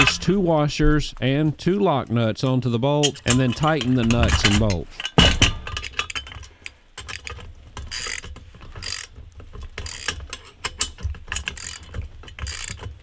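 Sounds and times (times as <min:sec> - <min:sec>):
ratchet wrench clicking: 0:07.0 - 0:09.2, 0:09.8 - 0:13.0.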